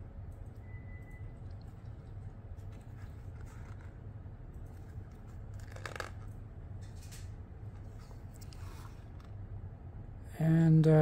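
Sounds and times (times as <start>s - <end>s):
steady low hum: 0.0s - 11.0s
paper pages rustling: 1.8s - 9.4s.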